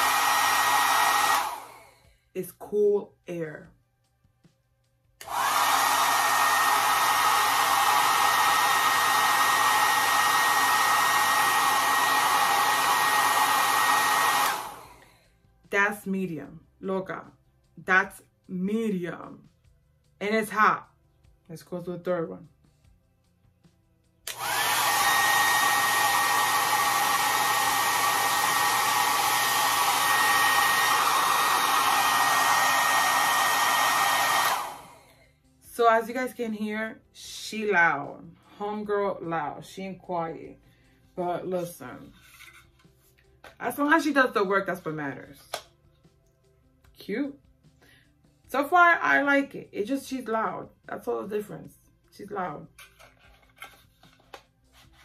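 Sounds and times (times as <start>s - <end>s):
hair dryer blowing: 0.0s - 2.1s, 5.2s - 15.2s, 24.2s - 35.9s.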